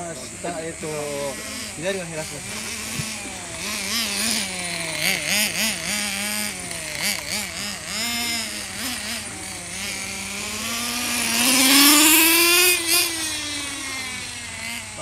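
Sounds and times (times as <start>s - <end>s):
small model car engine revving: 0.0s - 15.0s.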